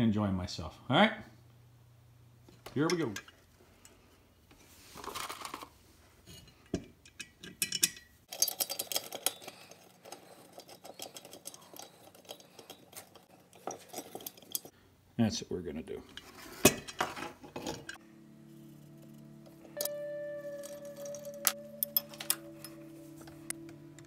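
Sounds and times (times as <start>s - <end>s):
light metal clicks and clinks: 6.4s - 14.7s, 19.8s - 23.5s.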